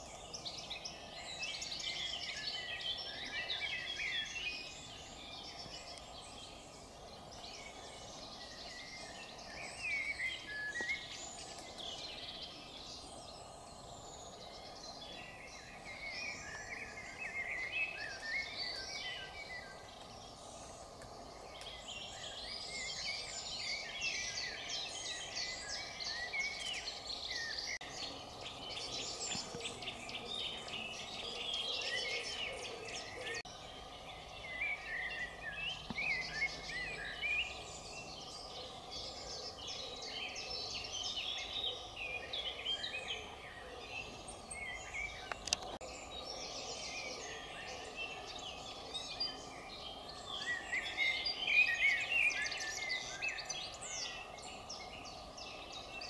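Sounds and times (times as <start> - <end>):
songbirds singing: 0.0 - 56.0.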